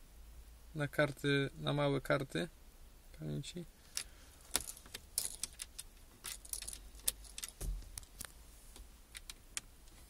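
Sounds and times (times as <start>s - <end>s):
soft thump: 7.6s - 8.0s.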